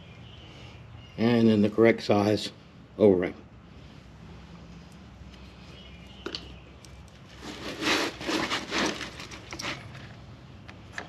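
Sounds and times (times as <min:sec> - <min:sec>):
work light rustling and scraping: 0:04.8 - 0:10.3.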